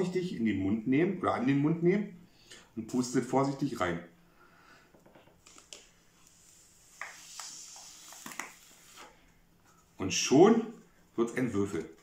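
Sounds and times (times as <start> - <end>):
breath blowing airy hiss: 6.2 - 9.2.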